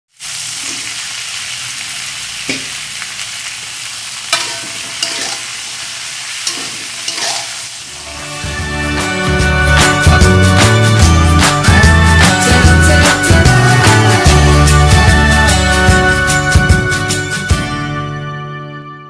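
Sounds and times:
stir-frying sizzle in a wok: 0.1s - 17.2s
spatula scraping a wok: 0.4s - 1.1s, 3.8s - 8.4s.

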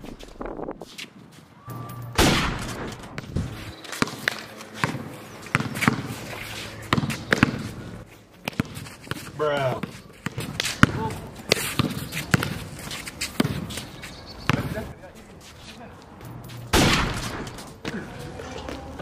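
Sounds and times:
basketball bouncing on asphalt: 2.8s - 15.2s.

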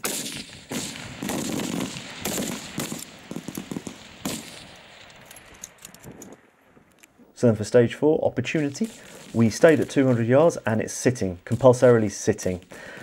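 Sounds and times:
rifle shots with rolling echo: 0.0s - 6.9s.

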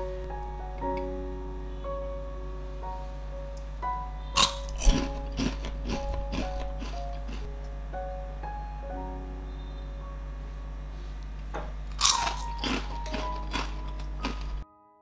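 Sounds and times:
soft background music: 0.0s - 15.0s
potato chips crunching: 4.4s - 7.5s, 11.9s - 14.6s.

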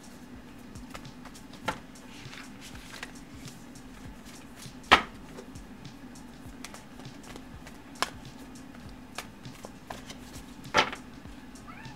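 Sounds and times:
low room hum: 0.0s - 11.9s
cards rustling on a table: 0.9s - 5.5s, 6.6s - 11.0s.

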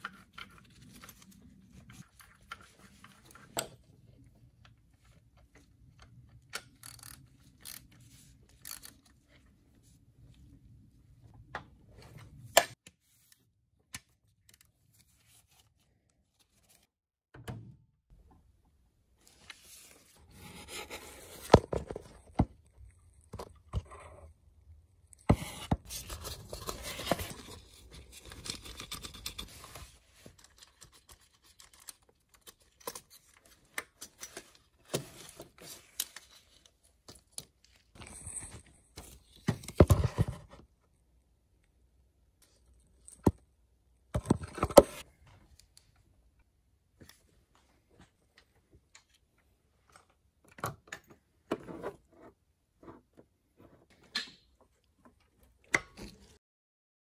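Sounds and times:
tools clicking and scraping: 5.8s - 9.4s.

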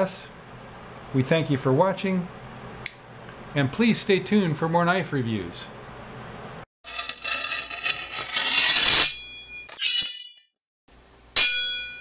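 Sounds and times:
metallic clangs ringing: 11.4s - 12.0s.

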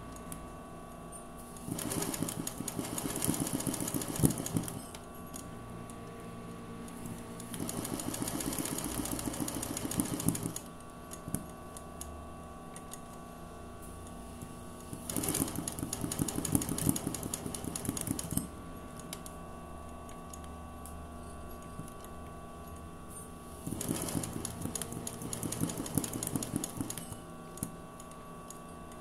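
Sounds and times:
low machine hum: 0.0s - 29.0s
sewing machine stitching: 1.6s - 5.0s, 7.4s - 10.7s, 14.9s - 18.5s, 23.6s - 27.2s.

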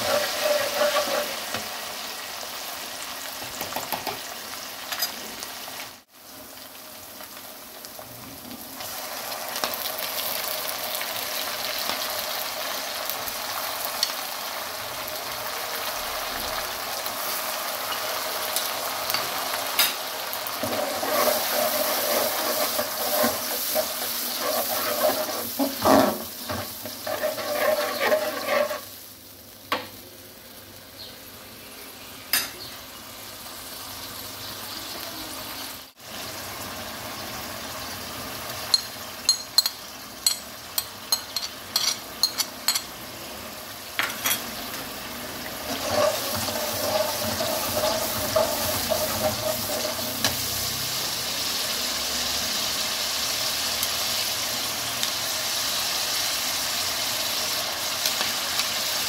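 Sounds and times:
metal spoon scraping wok: 0.0s - 1.6s, 20.6s - 29.0s, 45.6s - 50.7s
vegetables sizzling in oil: 0.0s - 59.0s.

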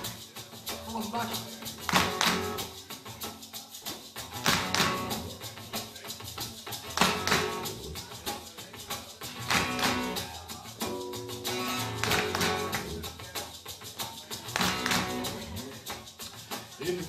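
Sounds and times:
acoustic guitar: 0.0s - 17.0s
hand shaker: 0.0s - 17.0s
sharp percussive accents: 0.0s - 17.0s
bass guitar: 0.9s - 2.8s, 4.2s - 5.7s, 6.4s - 13.5s, 14.4s - 16.2s.

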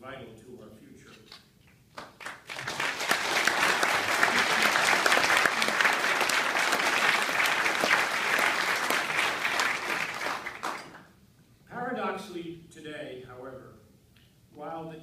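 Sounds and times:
audience applauding: 2.0s - 11.1s.

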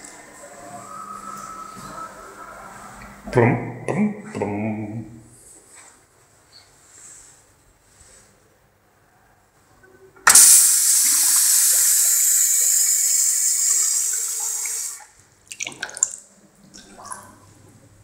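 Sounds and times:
urinal flushing water rush: 10.3s - 18.0s.

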